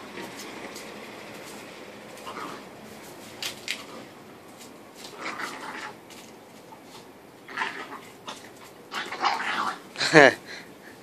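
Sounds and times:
dogs play-fighting scuffles: 0.0 - 7.2.

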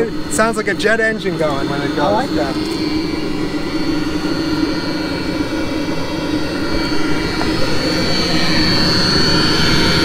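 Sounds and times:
heater burner rushing and whining: 0.0 - 10.0.

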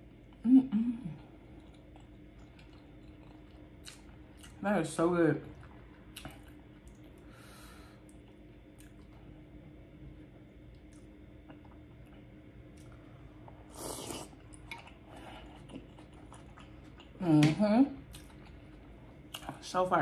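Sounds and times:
close-up eating mouth noises: 13.6 - 17.5.

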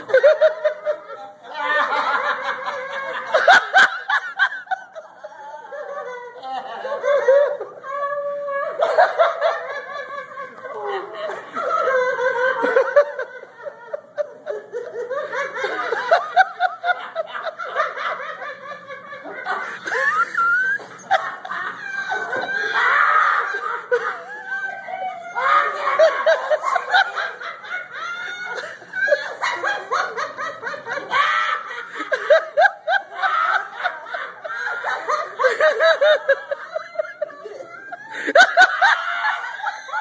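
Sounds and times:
people laughing helplessly: 0.0 - 40.0.

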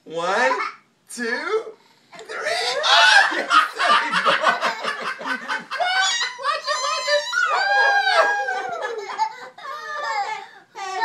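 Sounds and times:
people laughing hard: 2.4 - 10.4.

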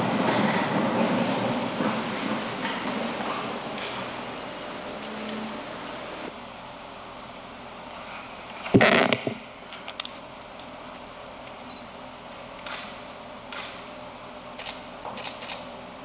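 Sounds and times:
camera shutters clicking: 14.6 - 15.6.

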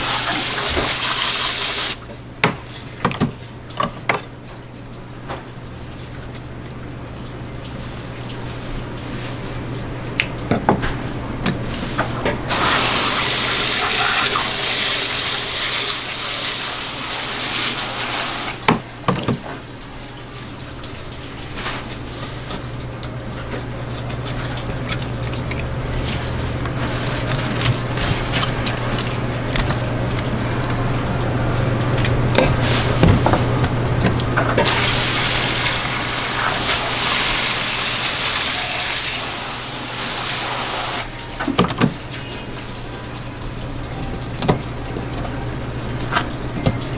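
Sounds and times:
hose spraying water: 0.0 - 2.0, 12.5 - 18.6, 34.6 - 41.1.

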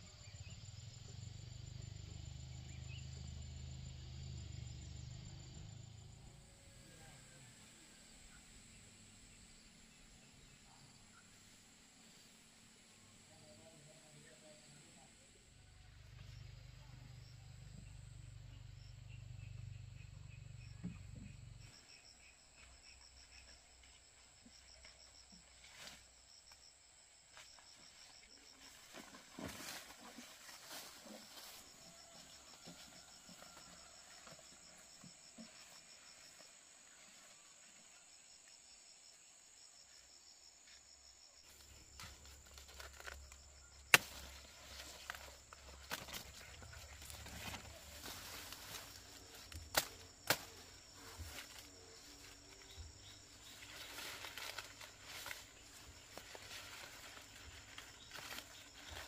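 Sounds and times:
insects chirping in a high trill: 14.9 - 59.0.

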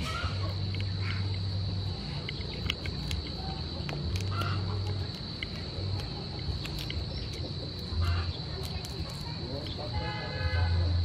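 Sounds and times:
prawn shell cracking: 0.0 - 9.9.

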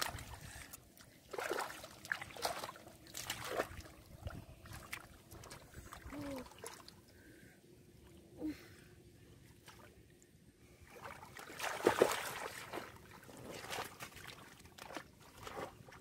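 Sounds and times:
splashing in muddy water: 0.0 - 7.0, 10.8 - 16.0.

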